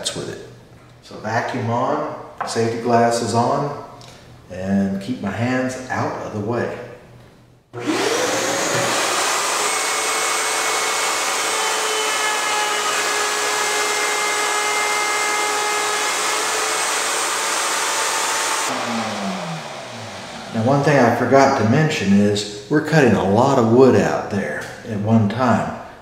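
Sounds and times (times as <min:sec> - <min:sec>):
router motor whine: 0:07.8 - 0:20.8
shop vacuum rushing: 0:07.8 - 0:21.8.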